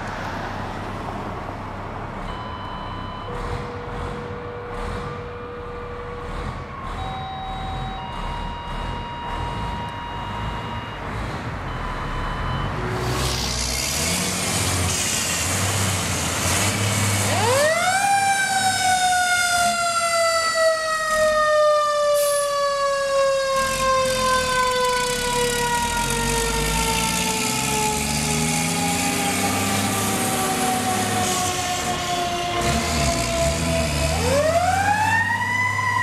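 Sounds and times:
diesel truck engine passing: 0.0s - 21.7s, 22.6s - 36.0s
fire truck siren winding: 6.3s - 11.0s, 17.2s - 36.0s.

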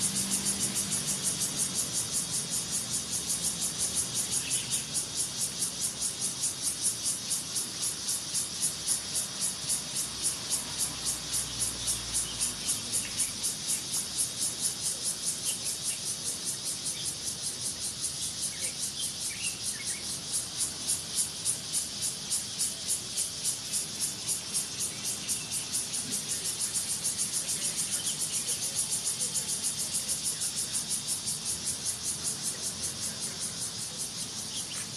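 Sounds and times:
insects chirping: 0.0s - 34.9s.

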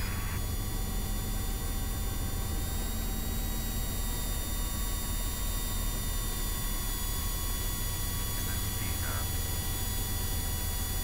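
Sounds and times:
electrical hum: 0.0s - 11.0s
helicopter rumble in cockpit: 0.0s - 11.0s
thin steady whines: 0.0s - 11.0s.

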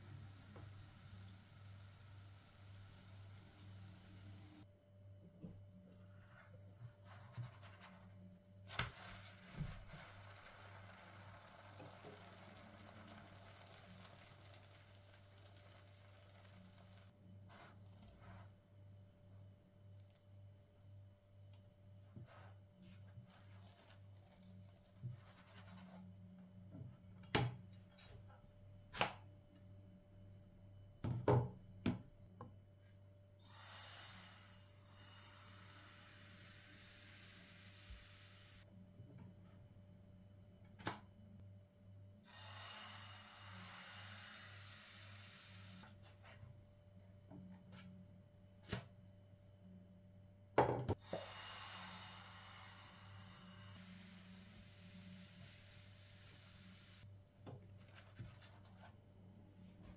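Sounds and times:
soft steady hiss: 0.0s - 4.7s.

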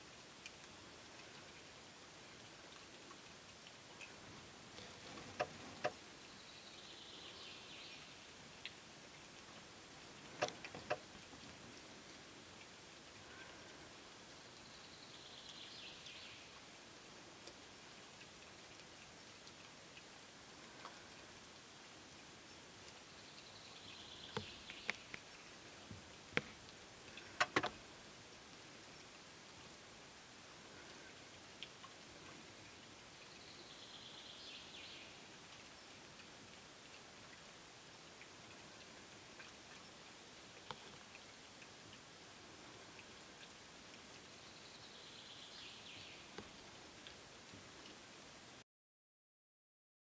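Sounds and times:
sharp clicks: 10.3s - 11.1s, 27.1s - 27.8s.

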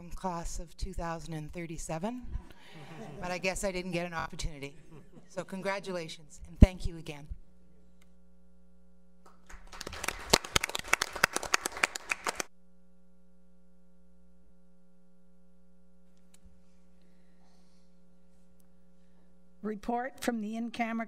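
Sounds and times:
faint electrical hum: 0.0s - 21.0s
people clapping: 9.2s - 12.5s.

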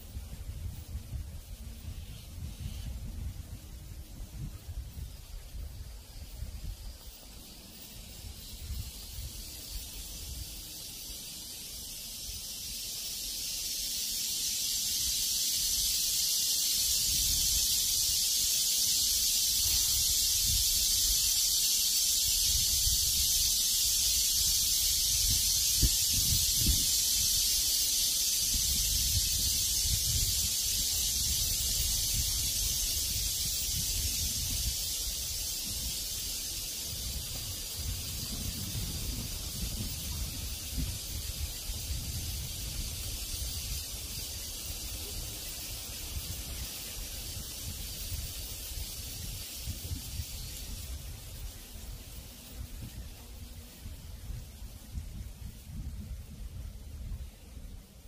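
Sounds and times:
wind on microphone: 0.0s - 7.1s, 16.8s - 58.0s
cicadas buzzing: 0.0s - 58.0s.

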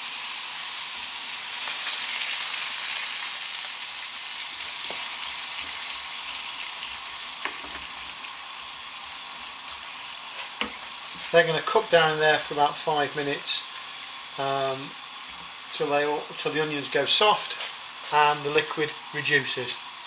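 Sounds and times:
onions sizzling in a frying pan: 0.0s - 20.0s.

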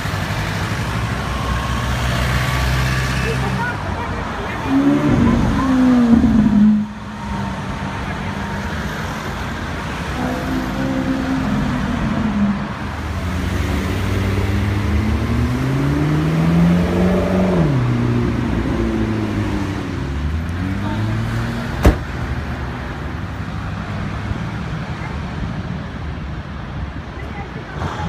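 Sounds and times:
car engine accelerating: 4.6s - 7.3s
steady engine note: 10.2s - 12.7s.

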